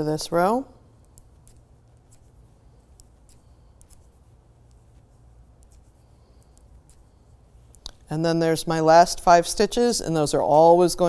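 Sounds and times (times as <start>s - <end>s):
low steady hum: 0.0s - 11.0s
knitting needles clicking: 1.0s - 4.8s.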